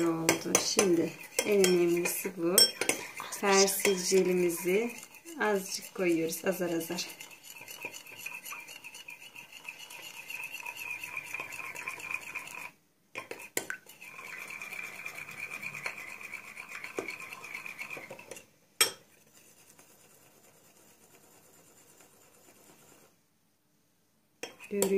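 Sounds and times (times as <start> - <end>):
fork clinking in glass bowl: 0.3 - 4.2.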